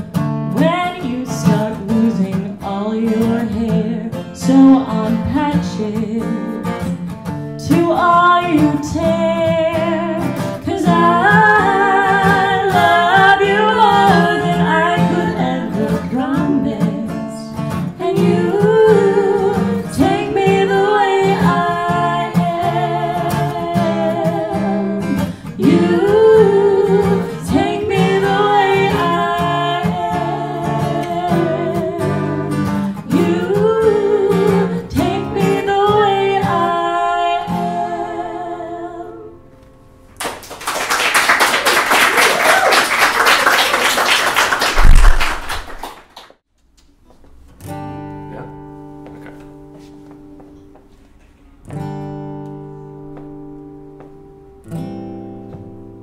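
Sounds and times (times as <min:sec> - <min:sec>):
strummed acoustic guitar: 0:00.0 - 0:38.7, 0:47.4 - 0:50.8, 0:51.6 - 0:56.0
women singing: 0:00.6 - 0:06.6, 0:07.6 - 0:39.5
audience applauding: 0:40.2 - 0:46.3.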